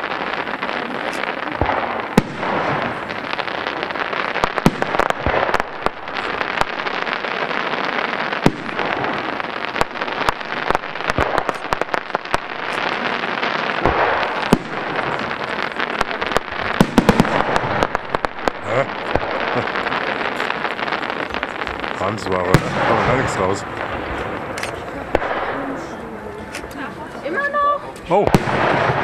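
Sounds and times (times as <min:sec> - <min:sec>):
fireworks bursting: 0:00.0 - 0:29.0.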